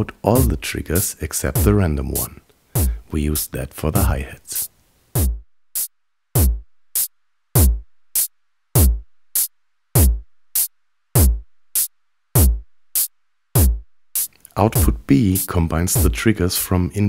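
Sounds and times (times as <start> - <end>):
deep electronic kick drum: 1.6 - 1.8, 2.8 - 3.1, 5.2 - 15.1, 15.9 - 16.3
light electronic drum hits: 1.6 - 3.0, 5.2 - 15.1, 15.9 - 16.3.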